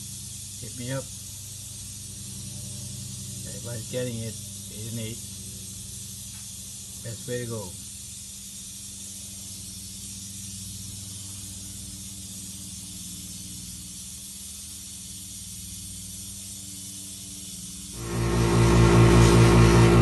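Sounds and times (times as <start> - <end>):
steady hiss: 0.0 - 20.0
polishing motor pulsing hum: 1.3 - 6.2, 17.9 - 20.0
low hum: 18.0 - 20.0.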